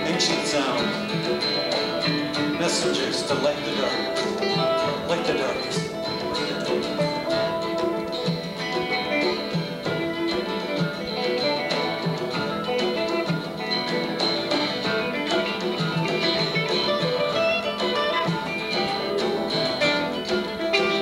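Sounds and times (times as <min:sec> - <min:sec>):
acoustic guitar picking: 0:00.0 - 0:21.0
electric guitar: 0:00.0 - 0:21.0.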